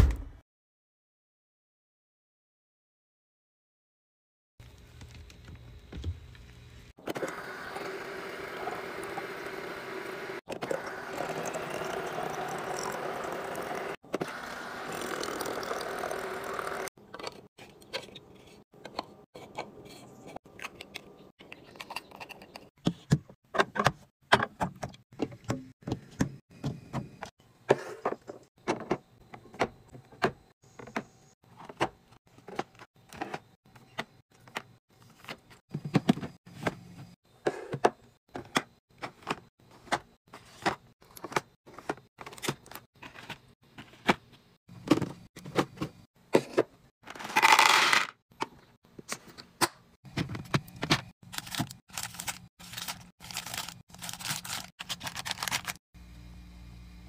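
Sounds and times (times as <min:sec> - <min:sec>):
candies rattling into container: 0:47.2 - 0:48.2, 0:51.3 - 0:55.8.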